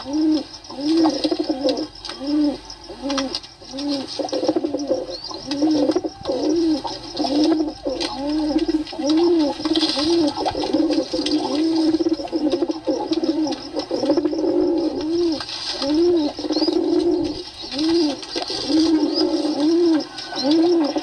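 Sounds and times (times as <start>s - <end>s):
pigeons cooing: 0.0s - 21.0s.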